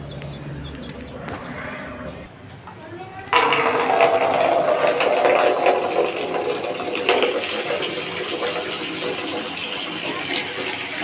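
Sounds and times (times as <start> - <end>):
tap water pouring into bowl: 3.4 - 11.0.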